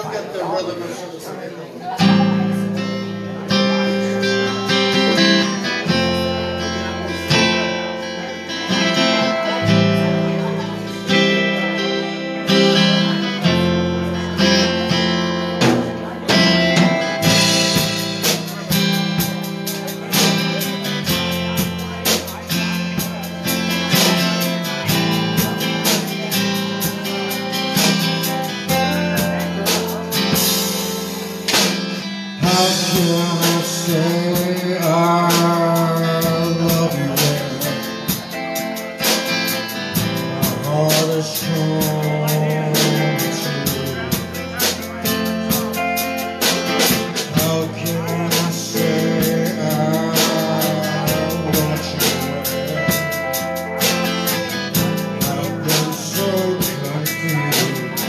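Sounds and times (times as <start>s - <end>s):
live blues band playing: 0.0s - 58.0s
man singing: 16.0s - 31.0s, 31.7s - 58.0s.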